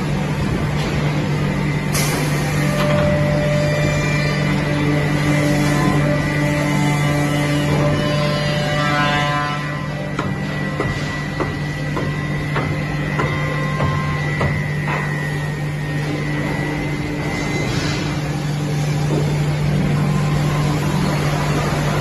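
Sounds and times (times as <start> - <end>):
milling machine low hum: 0.0 - 22.0.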